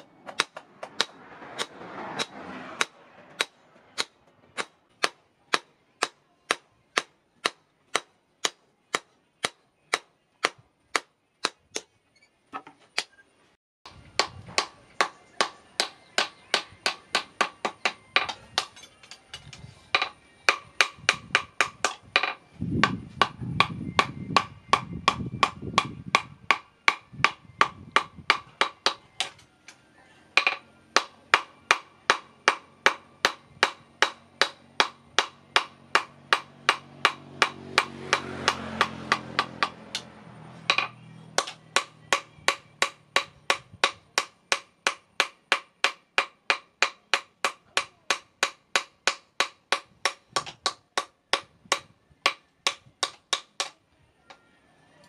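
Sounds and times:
hammer striking metal on anvil: 0:14.2 - 0:29.4, 0:30.4 - 0:40.1, 0:40.7 - 0:53.8.

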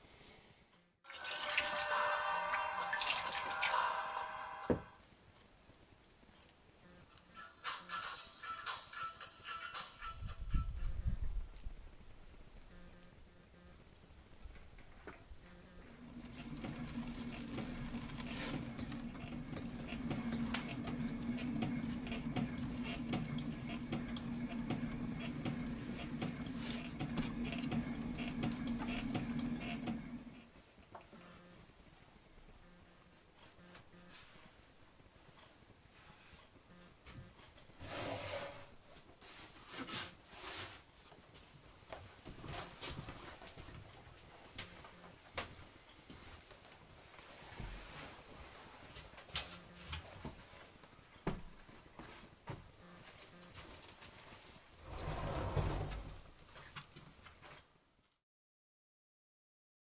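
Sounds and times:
potter's wheel humming: 0:15.4 - 0:30.6
plastic sheeting rustling: 0:15.8 - 0:30.2
tool scraping clay: 0:15.8 - 0:30.4.

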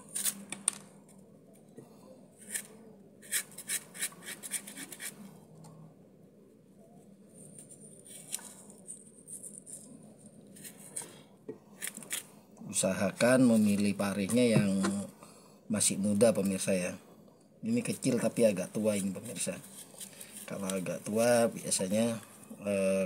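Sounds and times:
spoon scraping melon: 0:02.4 - 0:05.3.

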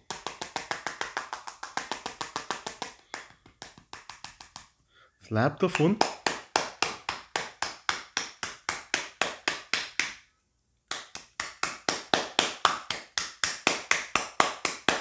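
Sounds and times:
fingertips tapping on smartphone: 0:00.0 - 0:04.8.

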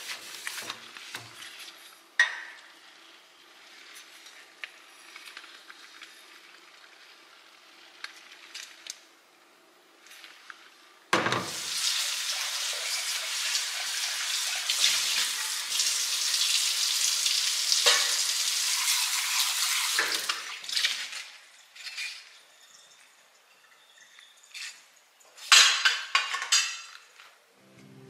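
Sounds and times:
faucet water running into pot: 0:11.5 - 0:21.2.

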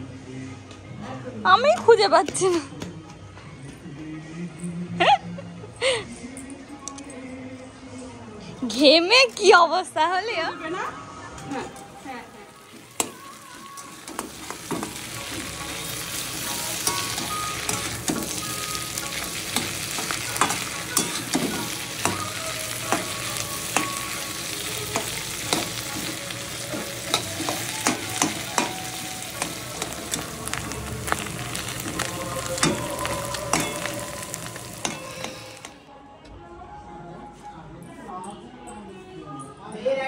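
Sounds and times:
vegetables sizzling in oil: 0:11.7 - 0:35.8
metal spatula scraping wok: 0:12.6 - 0:35.8.

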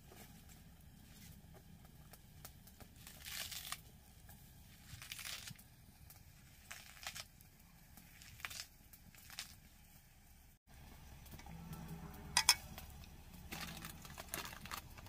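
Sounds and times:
leafy greens tearing: 0:02.8 - 0:09.7, 0:11.5 - 0:15.0.

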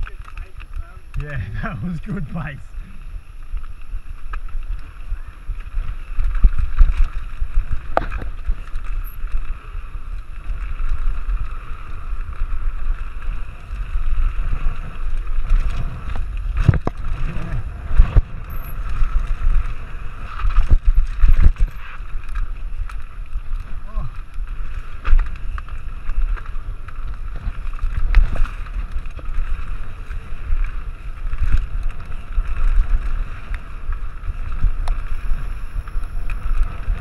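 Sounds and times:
tyres rumbling on dirt: 0:00.0 - 0:37.0
wind buffeting microphone: 0:00.8 - 0:37.0
bike knocks and rattles: 0:14.5 - 0:35.1.

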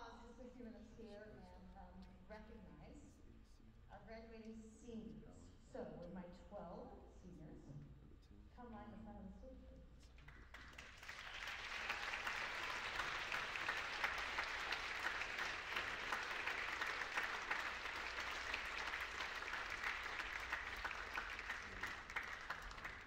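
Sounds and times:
audience applauding: 0:10.3 - 0:23.0.

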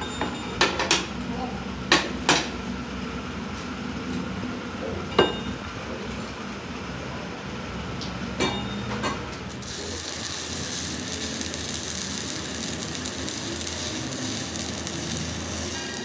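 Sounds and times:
welding arc crackling: 0:09.5 - 0:16.0.

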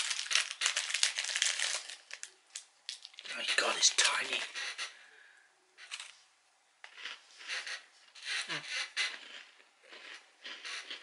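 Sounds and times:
chewing noises: 0:06.8 - 0:11.0.

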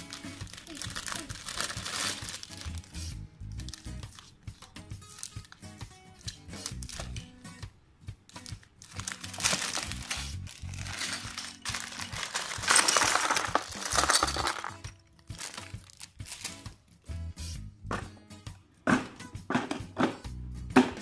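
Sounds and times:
plastic bag crinkling: 0:00.0 - 0:03.0, 0:08.3 - 0:16.6
background music: 0:00.0 - 0:21.0
plastic bricks clattering: 0:08.9 - 0:16.5.

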